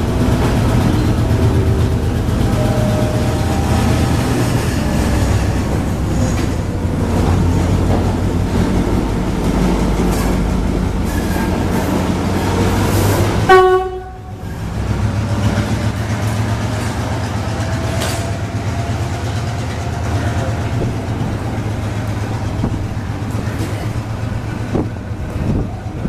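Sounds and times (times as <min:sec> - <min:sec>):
coaches rolling over rails: 0:00.0 - 0:26.0
diesel locomotive engine humming: 0:00.0 - 0:26.0
train horn blast: 0:13.4 - 0:14.4.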